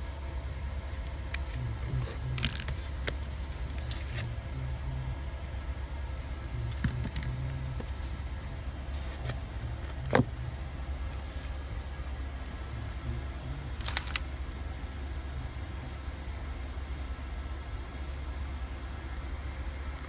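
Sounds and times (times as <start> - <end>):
low hum: 0.0 - 20.0
packaging clicks and knocks: 13.8 - 14.2.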